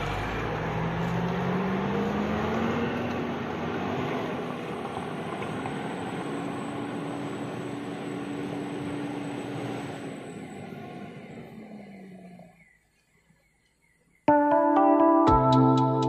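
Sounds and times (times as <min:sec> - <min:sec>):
truck engine revving hard: 0:00.0 - 0:12.6.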